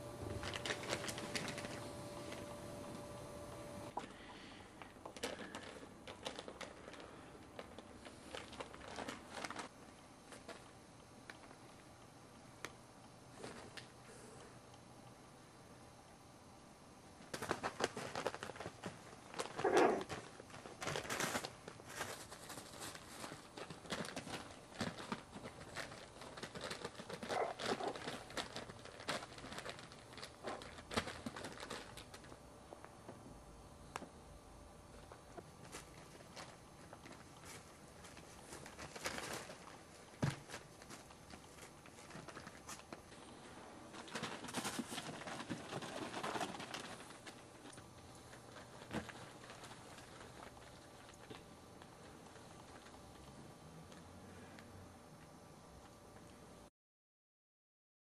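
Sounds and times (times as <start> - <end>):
paws pattering on blanket: 17.3 - 32.3, 35.0 - 53.0
puppy paws scrabbling on blanket: 17.3 - 32.3.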